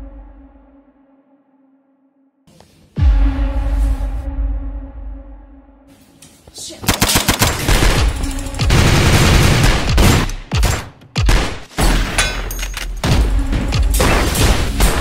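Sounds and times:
background music: 0:00.0 - 0:15.0
rapid gunfire bursts: 0:06.9 - 0:11.7.

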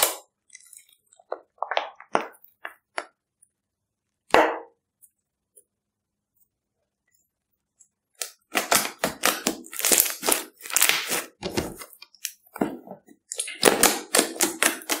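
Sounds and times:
slime squishing and crackling: 0:08.2 - 0:12.4, 0:13.2 - 0:15.0.

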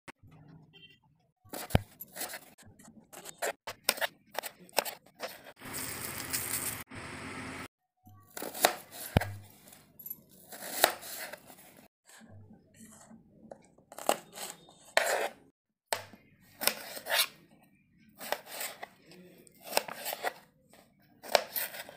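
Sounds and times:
knife slicing onion on board: 0:10.5 - 0:11.4, 0:16.6 - 0:17.4.

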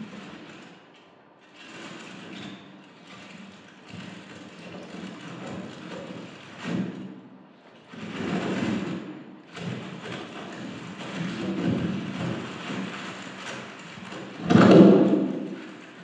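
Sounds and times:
rustling and crumpling of material: 0:09.5 - 0:16.0.

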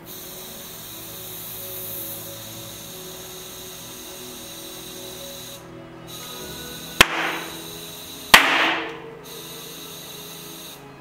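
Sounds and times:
background music: 0:00.0 - 0:11.0
short hiss: 0:04.4 - 0:10.8
sharp knocks: 0:07.0 - 0:07.6, 0:08.4 - 0:09.0.

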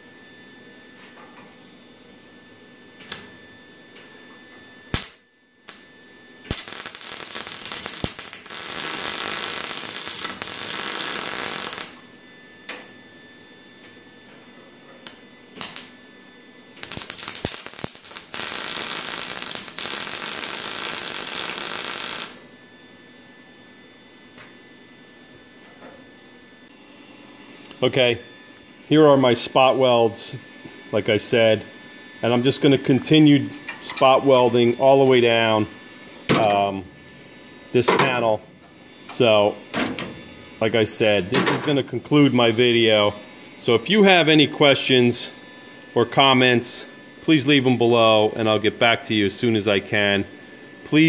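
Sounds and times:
welding arc crackling: 0:04.9 - 0:12.0, 0:15.0 - 0:16.0, 0:16.7 - 0:22.4
welding tack clicks: 0:15.0 - 0:15.9.

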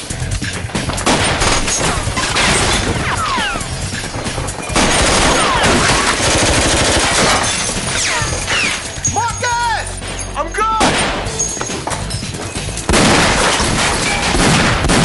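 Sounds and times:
film score music: 0:00.0 - 0:15.0
rapid handgun gunfire: 0:01.0 - 0:07.9, 0:12.9 - 0:15.0.

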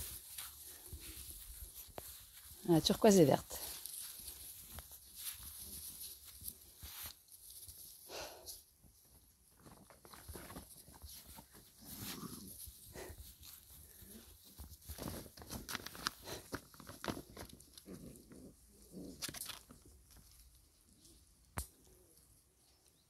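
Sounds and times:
rustling in grass: 0:00.0 - 0:09.6, 0:10.2 - 0:19.1.

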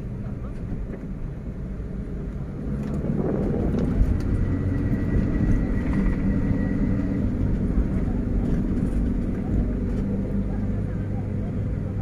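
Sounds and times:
traffic rumble: 0:00.0 - 0:12.0.

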